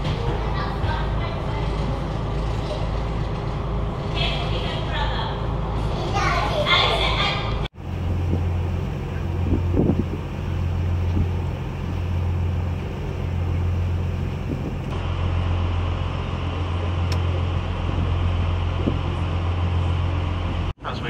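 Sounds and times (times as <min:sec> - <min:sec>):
boat engine droning: 0:00.0 - 0:21.0
rush of wind and water: 0:06.7 - 0:21.0.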